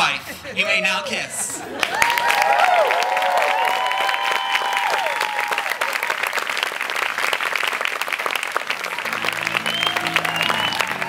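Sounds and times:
crowd clapping: 1.5s - 11.0s
person whooping: 9.6s - 11.0s.

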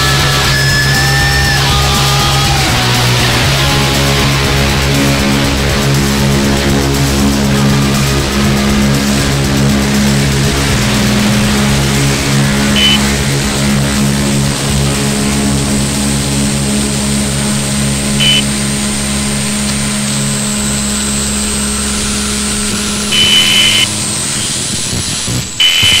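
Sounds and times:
sustained low drone tones: 0.0s - 25.8s
thin high whine: 0.0s - 26.0s
short high tone: 12.8s - 13.0s, 18.2s - 18.5s, 23.1s - 23.9s.

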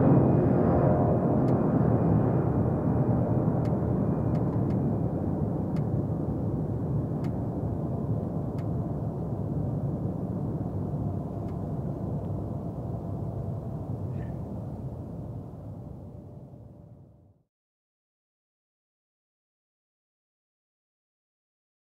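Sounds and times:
jet engines rumbling: 0.0s - 17.0s.

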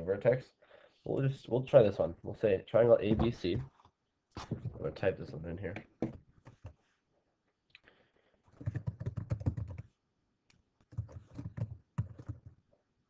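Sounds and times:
typing on computer keyboard: 8.6s - 9.9s, 10.8s - 12.5s.

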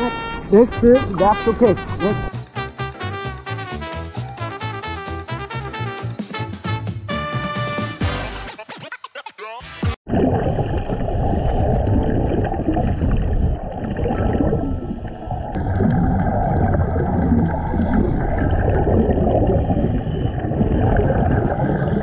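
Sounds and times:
muffled underwater water rush: 10.1s - 22.0s
regulator bubbles gurgling: 10.1s - 22.0s.

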